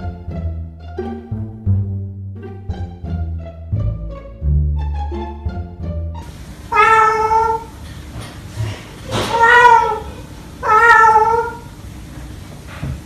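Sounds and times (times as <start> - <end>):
cockatoo meowing: 6.7 - 7.8, 9.0 - 11.8.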